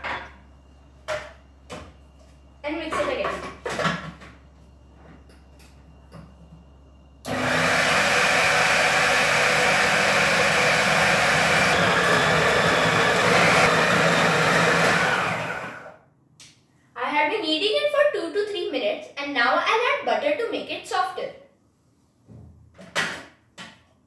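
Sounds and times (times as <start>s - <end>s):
food processor motor running: 7.3s - 16.0s.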